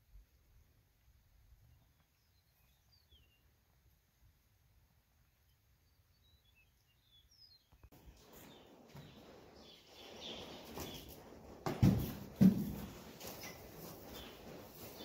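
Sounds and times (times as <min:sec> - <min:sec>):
scuffing and rustling: 0:08.0 - 0:15.0.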